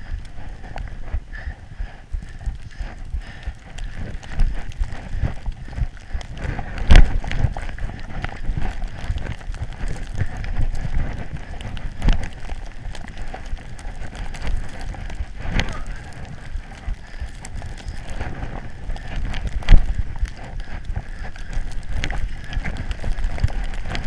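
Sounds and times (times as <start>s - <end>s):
wind buffeting camera: 0.0s - 24.0s
scraping and knocks over snow: 6.4s - 20.9s.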